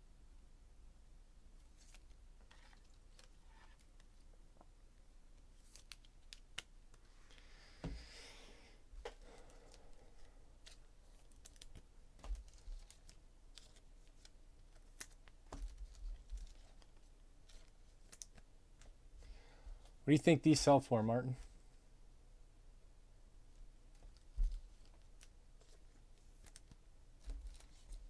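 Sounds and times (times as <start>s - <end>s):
soft rustle: 9.0s - 20.0s, 23.5s - 28.0s.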